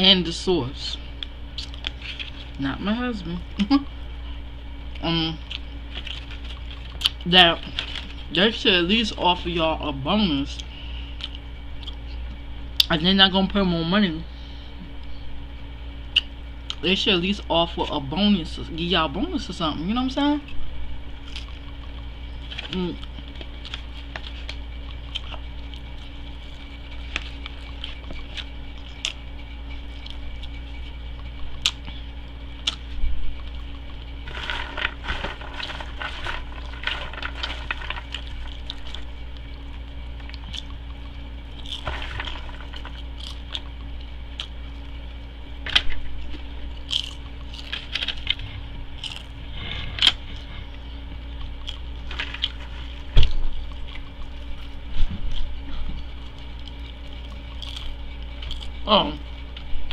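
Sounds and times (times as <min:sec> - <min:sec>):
low hum: 0:00.0 - 0:59.9
chewing and lip-smacking: 0:01.1 - 0:02.6, 0:03.5 - 0:08.4, 0:10.4 - 0:13.0, 0:16.0 - 0:17.0, 0:20.4 - 0:59.9
aluminium foil crinkling: 0:05.5 - 0:09.6, 0:33.6 - 0:40.8, 0:41.5 - 0:44.0, 0:45.7 - 0:48.4, 0:51.7 - 0:58.9.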